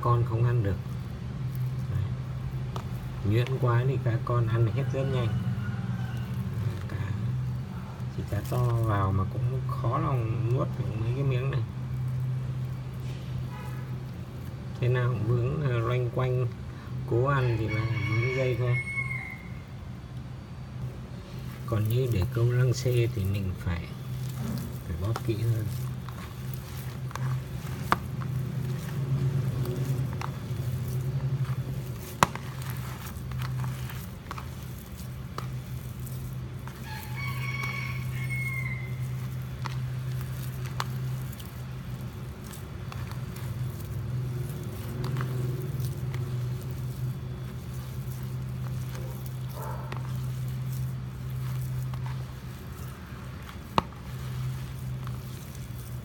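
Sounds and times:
rooster crowing: 2.8 - 8.8, 17.2 - 19.8, 23.7 - 41.7.

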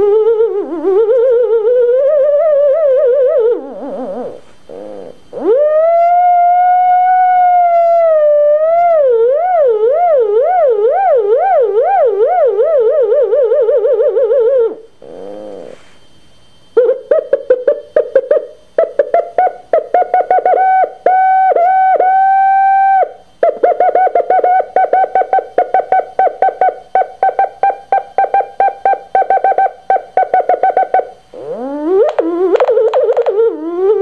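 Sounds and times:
long held electronic tone: 0.0 - 34.0
electronic pulsing beeps: 23.4 - 34.0.

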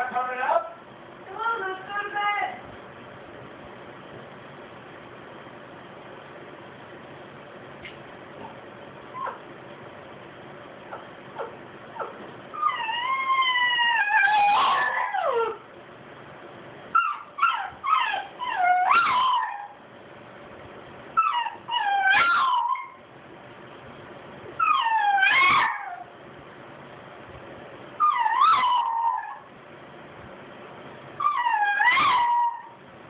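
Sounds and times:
dogs whining and howling: 8.4 - 9.5, 10.9 - 15.7, 16.9 - 19.8, 21.2 - 23.1, 24.6 - 26.2, 28.0 - 29.5, 31.2 - 32.8.

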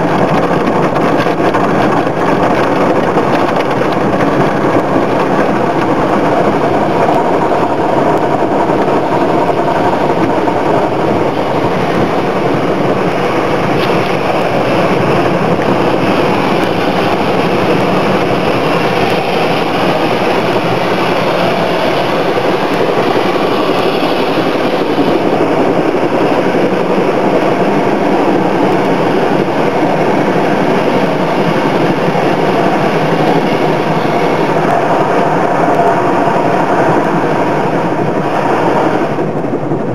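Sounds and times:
car wash water spraying on car: 0.0 - 30.0.

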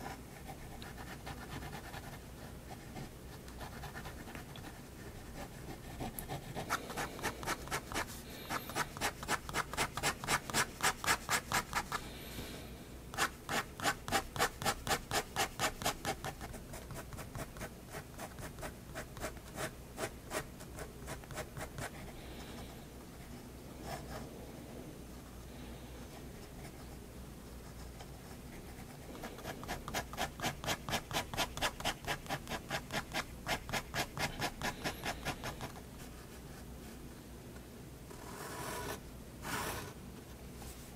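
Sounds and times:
pen scratching on paper: 0.0 - 12.0, 13.2 - 22.0, 27.7 - 35.8, 38.2 - 39.9.

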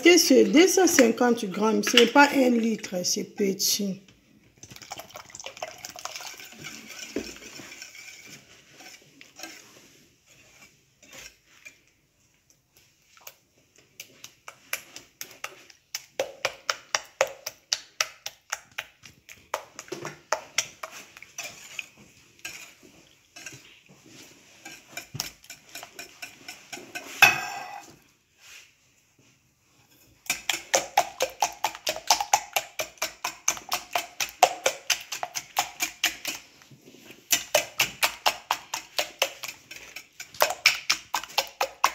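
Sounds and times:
milk pouring: 4.4 - 9.9
whisk clicking against glass bowl: 30.3 - 36.4, 37.3 - 41.9.

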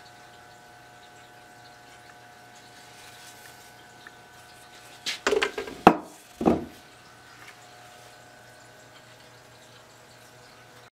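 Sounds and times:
axe clattering on wooden bench: 5.3 - 6.7.

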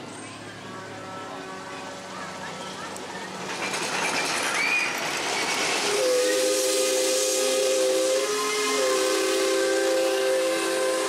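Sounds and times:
steam hissing: 3.2 - 11.0
steam whistle: 5.8 - 11.0.

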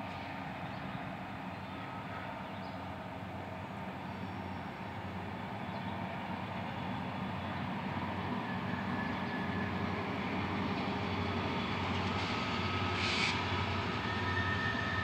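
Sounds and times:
distant diesel locomotive drone: 0.0 - 15.0.

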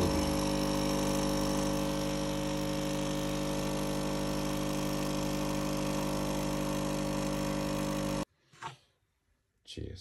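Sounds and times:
espresso machine pump buzzing: 0.0 - 8.3.

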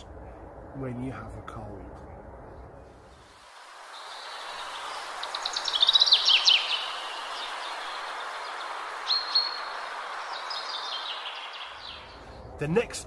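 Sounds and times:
outdoor background hiss: 0.0 - 13.0
songbird chirping and trilling: 3.4 - 12.6.

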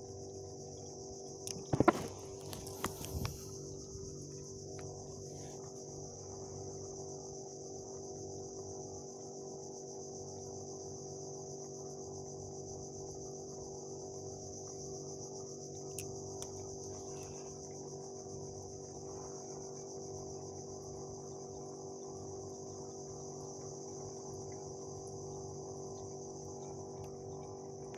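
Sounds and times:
low hum: 0.0 - 8.8.

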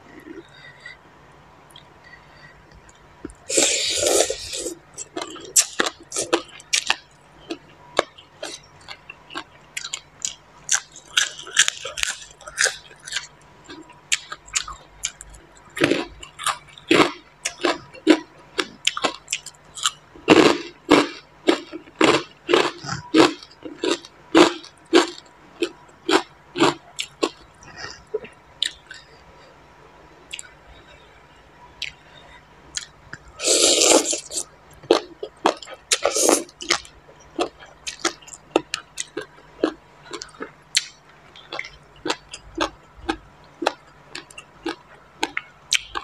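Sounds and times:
person chewing crunchy vegetables: 0.0 - 1.0, 1.6 - 29.3, 30.2 - 46.0.

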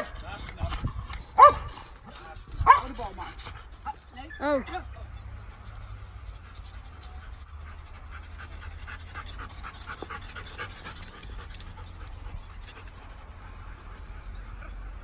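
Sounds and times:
dog panting: 0.0 - 4.7, 5.4 - 15.0.

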